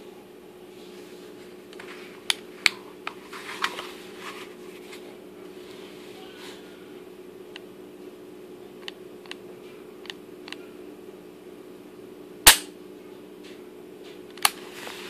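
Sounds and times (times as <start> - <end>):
pistol hammer snapping: 12.5 - 12.7.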